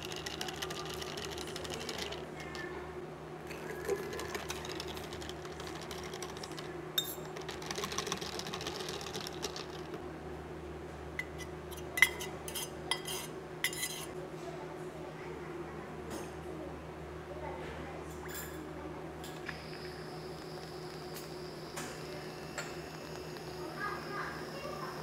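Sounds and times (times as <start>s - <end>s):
low machine hum: 0.0s - 25.0s
spoon and ice clinking glass: 7.0s - 7.3s.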